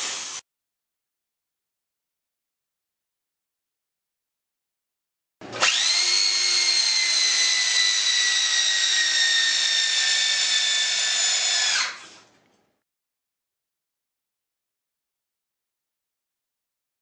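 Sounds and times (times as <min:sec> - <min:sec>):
electric drill whining: 0:05.6 - 0:12.2.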